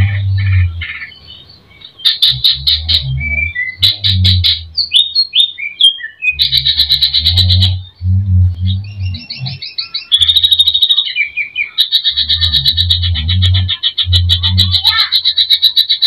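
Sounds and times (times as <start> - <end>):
low rumble: 0.0 - 1.1, 2.2 - 5.0, 6.4 - 9.6, 12.2 - 14.9
bird singing varied song: 0.0 - 16.0.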